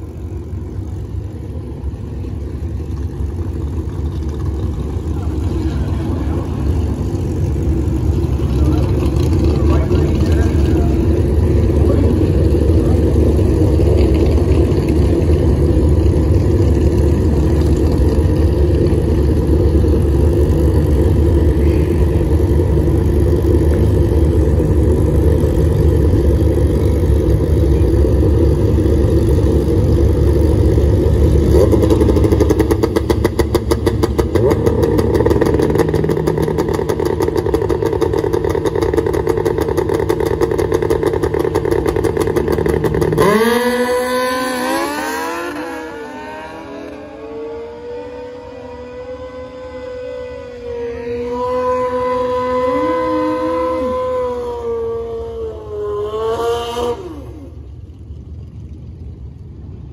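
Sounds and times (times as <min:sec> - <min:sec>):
loud engine running: 0:00.0 - 0:59.9.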